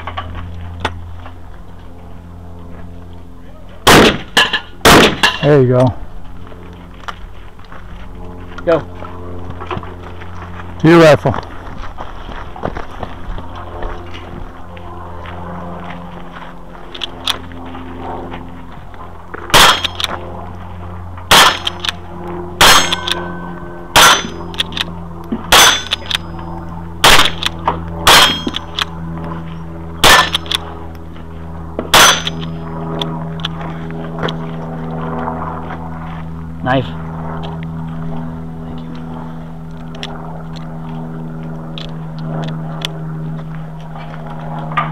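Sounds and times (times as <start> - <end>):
rifle shots: 3.8 - 5.4, 19.5 - 20.1, 21.3 - 22.0, 22.6 - 23.2, 23.9 - 24.4, 27.0 - 28.8, 30.0 - 30.6, 31.9 - 32.5
steel targets ringing: 19.5 - 20.0, 22.6 - 24.5, 25.5 - 27.4, 28.0 - 28.7, 30.0 - 30.5, 31.9 - 32.6.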